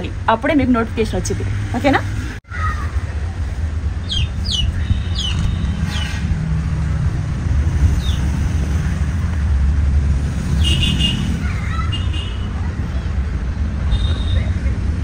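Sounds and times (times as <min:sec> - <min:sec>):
bird chirps: 0:04.0 - 0:06.1.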